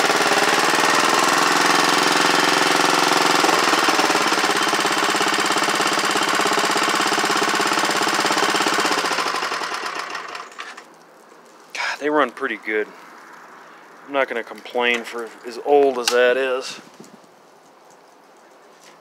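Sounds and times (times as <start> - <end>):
garden tractor engine running: 0.0 - 10.9.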